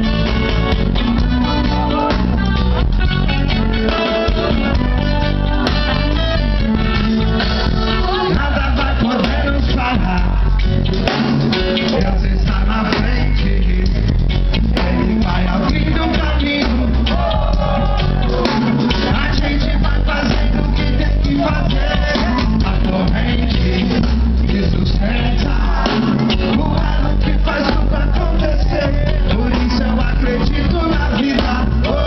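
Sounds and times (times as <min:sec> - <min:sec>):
bass guitar: 0:00.0 - 0:32.0
drum kit: 0:00.0 - 0:32.0
electric guitars: 0:00.0 - 0:32.0
lead singer singing: 0:07.9 - 0:32.0.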